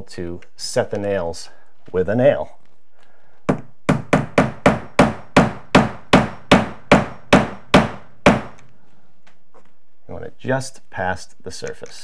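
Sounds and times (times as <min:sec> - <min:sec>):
hammer tapping on nail: 0:03.5 - 0:08.7.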